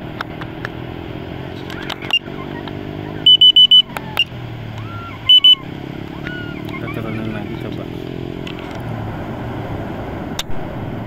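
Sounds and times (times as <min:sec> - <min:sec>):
outdoor noise: 0:00.0 - 0:11.0
vehicle engine passing: 0:00.0 - 0:11.0
shrill electronic beeps: 0:02.0 - 0:07.0.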